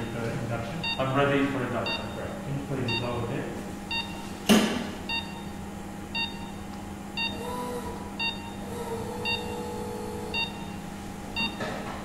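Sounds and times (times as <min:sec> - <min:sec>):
equipment humming: 0:00.0 - 0:12.0
pulse oximeter beeping: 0:00.8 - 0:01.0, 0:01.8 - 0:02.2, 0:03.9 - 0:04.2, 0:05.1 - 0:05.5, 0:06.2 - 0:06.6, 0:07.2 - 0:07.5, 0:08.2 - 0:10.8, 0:11.4 - 0:11.6.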